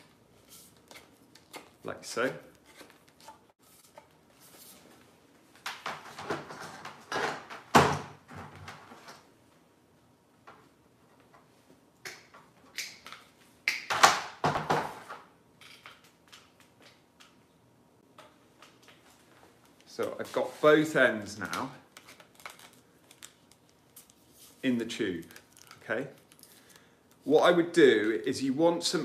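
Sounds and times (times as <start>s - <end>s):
objects rustling and clattering: 0.0s - 9.4s.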